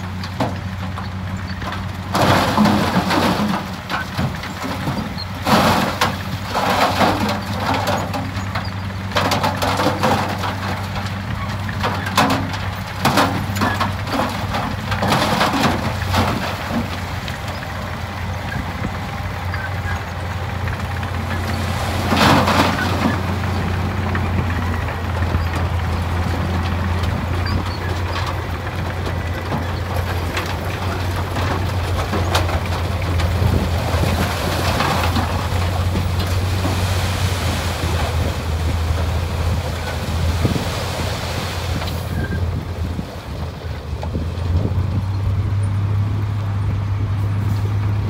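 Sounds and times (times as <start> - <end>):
rock and dirt sliding: 0.0 - 45.6
diesel engine running: 0.0 - 48.0.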